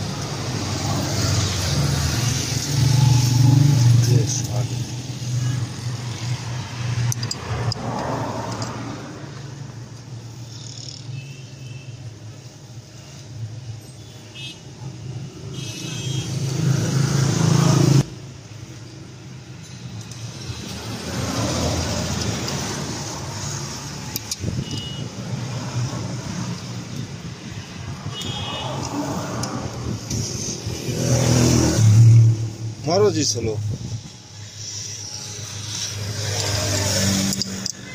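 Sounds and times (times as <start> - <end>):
diesel engine cranking: 34.5 - 37.9.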